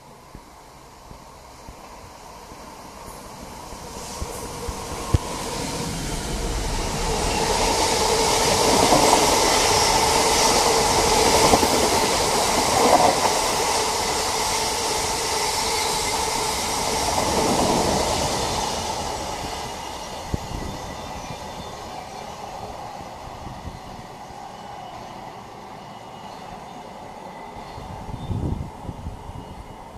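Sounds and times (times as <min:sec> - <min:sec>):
diesel locomotive passing: 0:00.1 - 0:29.9
wagons rumbling over rails: 0:04.5 - 0:22.2.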